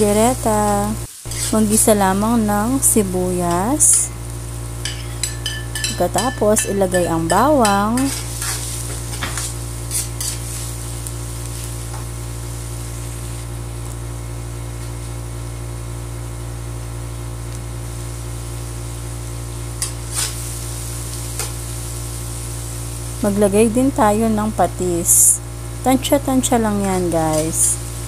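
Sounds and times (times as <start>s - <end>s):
low hum: 0.0s - 28.0s
onions sizzling in oil: 0.0s - 28.0s
metal spoon scraping a pan: 1.3s - 1.7s, 4.8s - 10.7s, 19.8s - 20.4s.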